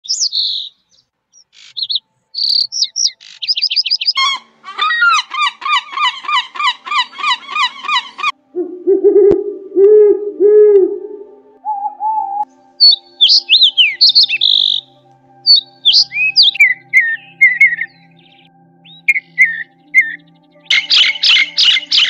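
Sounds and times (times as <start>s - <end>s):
sparrows chirping: 0.0s - 8.4s, 12.8s - 22.0s
gull calling: 4.1s - 11.0s, 19.1s - 22.0s
dove cooing: 4.7s - 12.4s.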